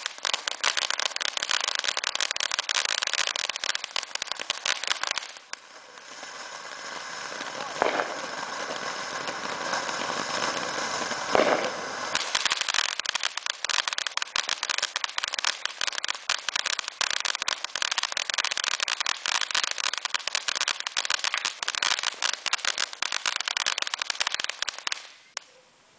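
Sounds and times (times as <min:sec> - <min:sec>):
firework burst: 0:00.0 - 0:25.4
firework fountain hissing: 0:00.0 - 0:25.5
firework crackling: 0:00.0 - 0:25.6.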